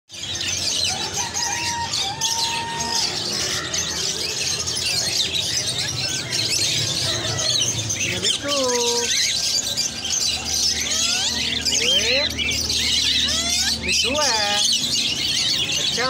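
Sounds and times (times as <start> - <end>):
caged birds chirping and screeching: 0.1 - 16.0.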